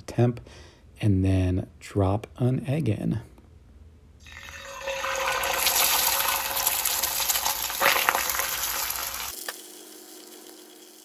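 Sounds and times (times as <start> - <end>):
egg sizzling in hot oil: 4.2 - 11.0.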